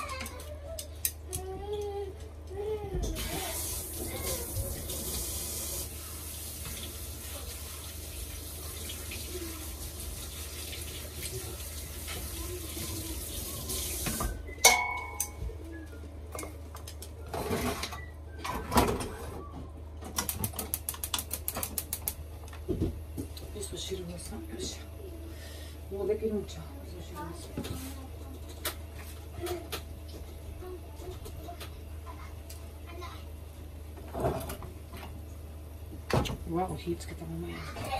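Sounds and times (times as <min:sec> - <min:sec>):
tap water running into sink: 0:03.2 - 0:14.4
sharp ringing clink: 0:14.6 - 0:15.4.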